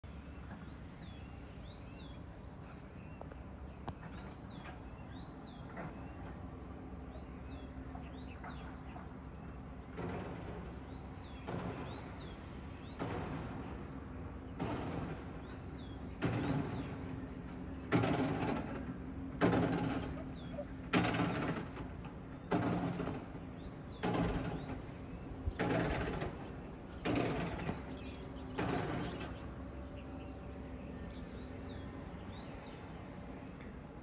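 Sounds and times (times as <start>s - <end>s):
birds chirping: 0.0s - 34.0s
construction machinery hum: 0.0s - 34.0s
harsh machinery bursts: 9.8s - 32.5s.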